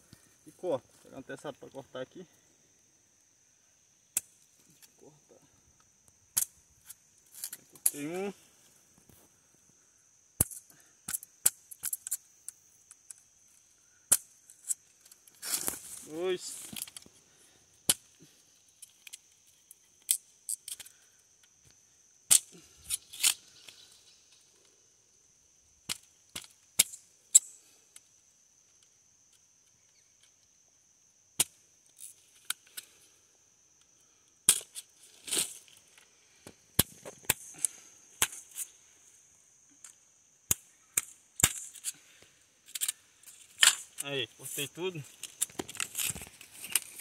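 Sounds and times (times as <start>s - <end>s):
machete cutting wires: 22.3s - 23.4s, 25.8s - 27.5s, 34.5s - 35.7s, 36.8s - 38.7s, 40.4s - 42.0s.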